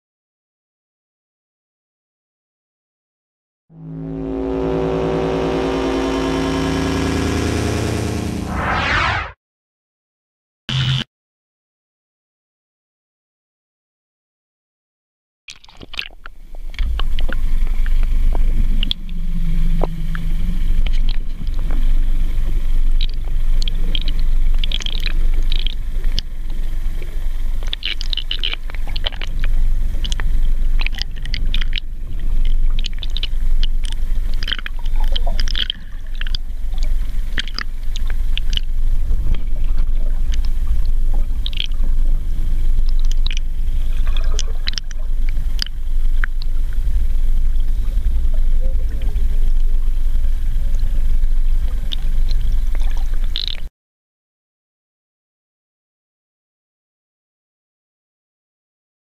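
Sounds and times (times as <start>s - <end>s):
bubbles crackling and clicking: 15.5s - 19.2s, 19.8s - 26.3s, 27.0s - 42.0s, 42.8s - 46.6s, 51.8s - 53.7s
underwater rumble of moving water: 15.8s - 53.7s.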